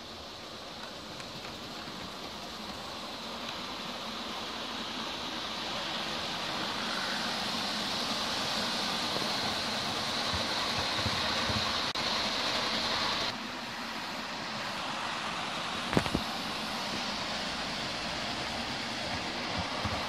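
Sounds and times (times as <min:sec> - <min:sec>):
model train whirring: 0:00.0 - 0:20.0.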